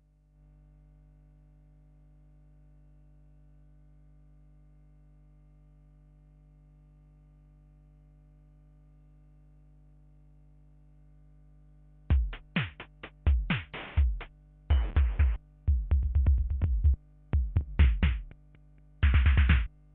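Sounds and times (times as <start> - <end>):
stuttering electronic kick hits: 12.1 - 18.3.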